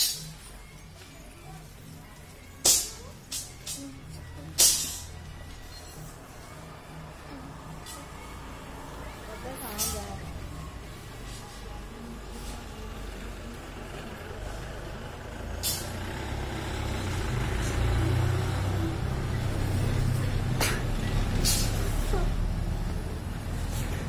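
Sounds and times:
vehicle engine rumble: 0.0s - 24.0s
short sharp hisses: 21.4s - 22.0s.

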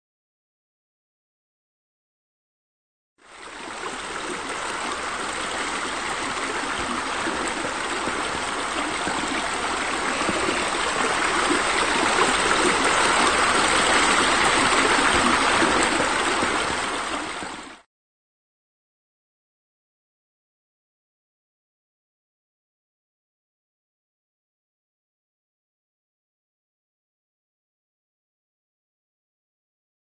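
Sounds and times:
running water rushing: 3.2s - 17.8s.

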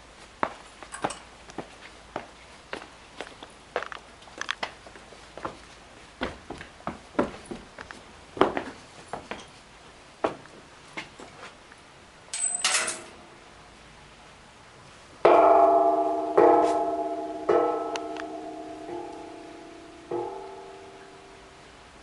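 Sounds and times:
small knocks and clicks: 3.2s - 4.7s
metal bell struck: 15.3s - 21.6s.

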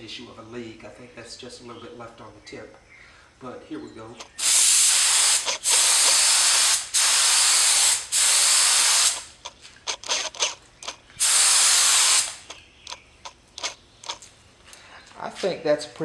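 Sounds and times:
spray gun hissing: 4.2s - 10.5s, 11.2s - 12.6s
spray gun spurts and clicks: 4.2s - 14.3s.

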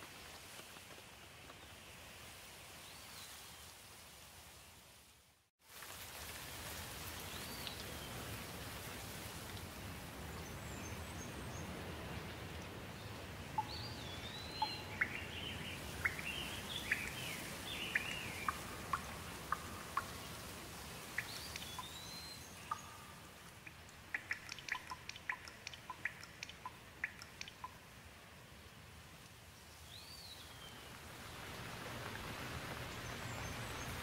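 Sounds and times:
steady rain falling: 0.0s - 34.0s
water drips ticking: 7.2s - 8.0s, 13.5s - 28.1s
bird chirping: 13.6s - 20.3s, 20.9s - 27.8s.

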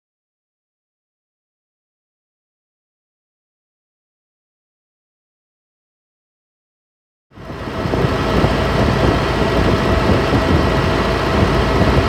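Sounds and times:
excavator diesel engine running: 7.4s - 12.0s.

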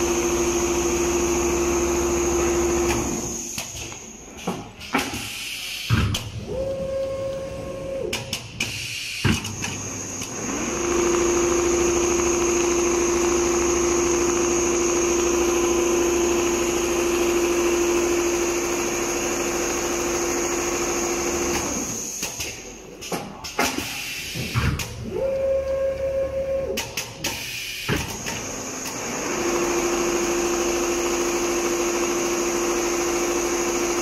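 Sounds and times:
sewing machine whine: 0.0s - 3.6s, 9.6s - 22.2s, 28.1s - 34.0s.

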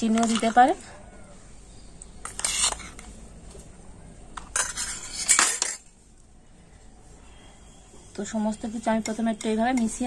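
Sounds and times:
spoon scraping steel bowl: 2.2s - 3.1s, 4.4s - 5.9s, 8.5s - 10.0s.

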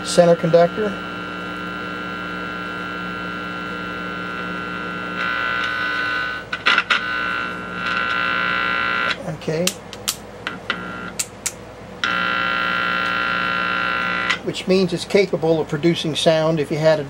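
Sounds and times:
buzzing hum from loudspeaker: 0.0s - 17.0s
contact clicks: 9.1s - 12.2s.

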